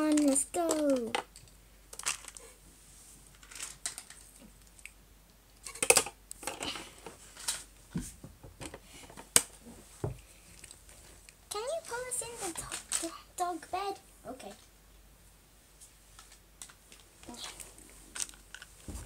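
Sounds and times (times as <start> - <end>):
plastic toys clicking and tapping: 0.0 - 2.4, 3.4 - 4.9, 5.6 - 7.6, 12.5 - 13.2.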